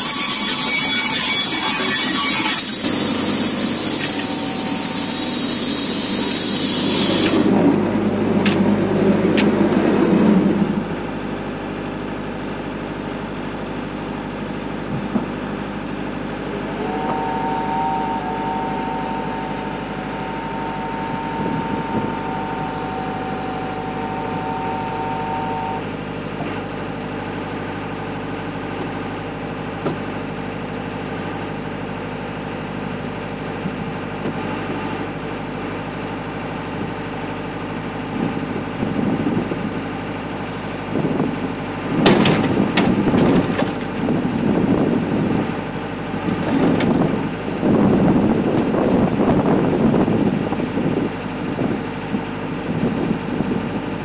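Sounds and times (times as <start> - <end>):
diesel generator and sawmill running: 0.0 - 54.0
high two-note whine: 16.3 - 26.2.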